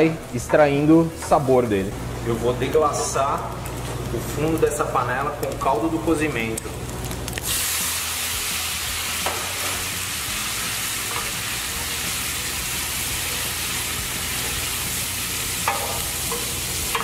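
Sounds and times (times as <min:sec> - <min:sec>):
water sizzling in a hot pan: 0:07.1 - 0:17.0.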